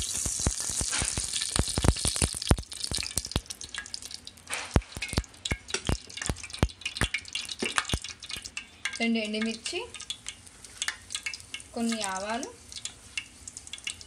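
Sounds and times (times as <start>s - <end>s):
faint sizzle: 0.0s - 14.0s
oil crackling and popping: 0.0s - 14.0s.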